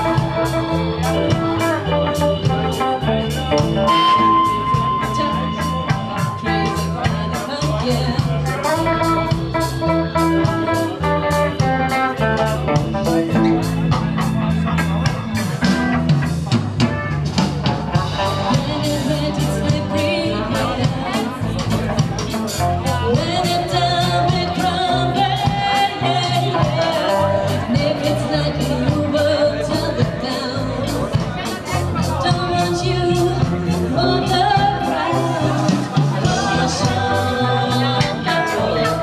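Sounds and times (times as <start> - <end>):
live rock band playing: 0.0 - 39.0
woman singing: 4.8 - 11.7, 18.2 - 21.7, 23.0 - 39.0.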